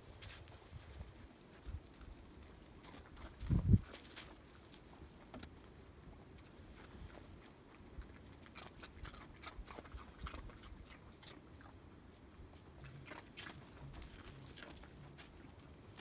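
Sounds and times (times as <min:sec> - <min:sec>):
crunching of crusted snow: 0:00.0 - 0:05.5, 0:12.4 - 0:16.0.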